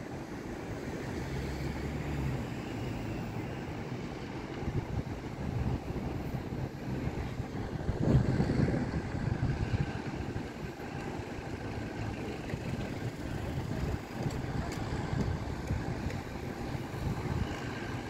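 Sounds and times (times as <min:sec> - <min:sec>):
distant engines: 0:00.0 - 0:18.0
wind buffeting microphone: 0:04.3 - 0:18.0.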